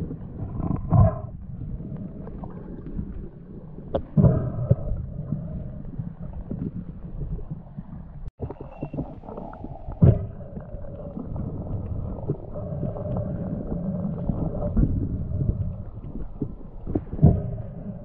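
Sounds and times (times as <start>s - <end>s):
muffled underwater rumble: 0.0s - 18.0s.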